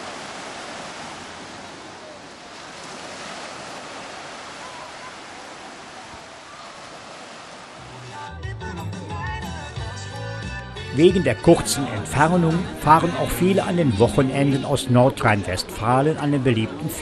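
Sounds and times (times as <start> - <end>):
waves breaking on beach: 0.0 - 8.0.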